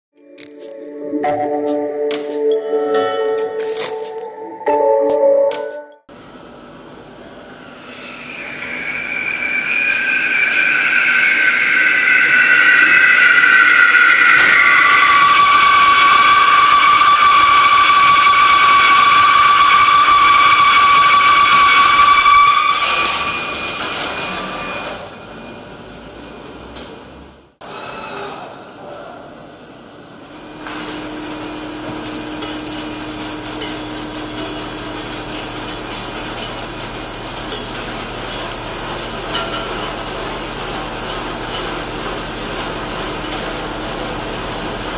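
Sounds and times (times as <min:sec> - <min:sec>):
machine noise: 0:06.1 - 0:26.5, 0:30.2 - 0:44.9
lathe cutting metal whine: 0:07.0 - 0:26.2, 0:30.2 - 0:44.9.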